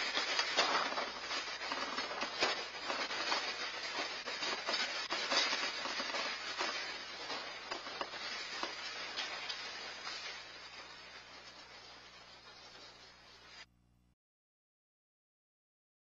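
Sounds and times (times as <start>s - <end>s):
house rattling and creaking: 0.0s - 13.5s
hiss: 0.0s - 13.7s
patter of clicks and crackles: 0.0s - 13.7s.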